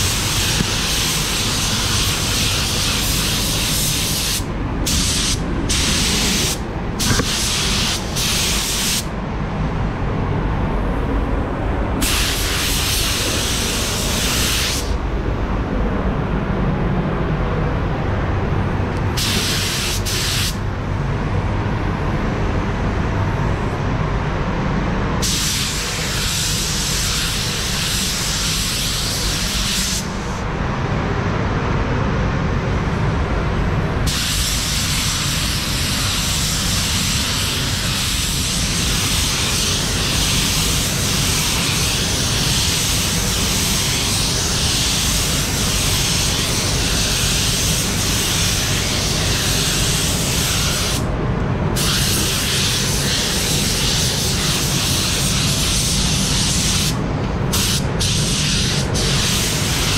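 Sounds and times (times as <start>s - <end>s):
spray gun hissing: 0.0s - 9.1s, 12.0s - 15.0s, 19.2s - 20.6s, 25.2s - 30.4s, 34.1s - 51.1s, 51.8s - 59.9s
fans rumbling: 0.0s - 59.9s.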